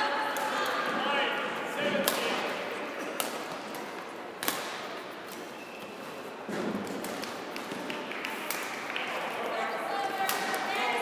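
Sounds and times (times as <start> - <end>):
racket striking shuttlecock: 3.0 - 5.4.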